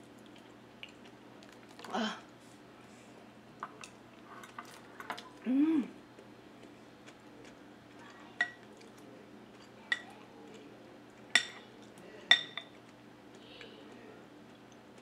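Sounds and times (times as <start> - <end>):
metal spoon clinking on glass bowl: 12.3 - 12.7.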